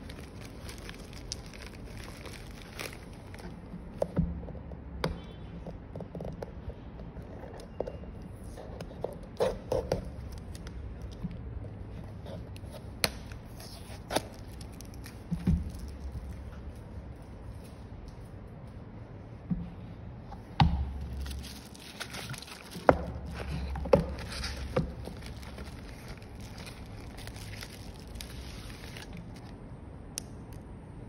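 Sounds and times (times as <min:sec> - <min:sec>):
plastic mailer crinkling: 0:00.0 - 0:03.6, 0:21.1 - 0:29.6.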